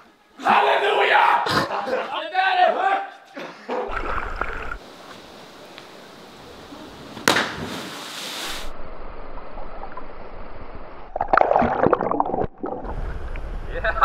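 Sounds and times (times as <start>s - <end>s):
steady background hiss: 4.6s - 9.4s
spray hiss: 4.8s - 8.7s
loud splash into water: 7.2s - 8.7s.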